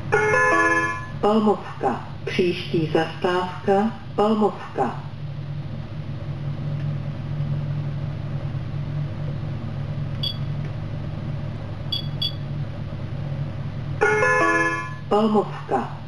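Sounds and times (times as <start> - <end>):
vehicle low hum: 0.0 - 16.0
electronic key beeps: 10.2 - 10.5, 11.9 - 12.4.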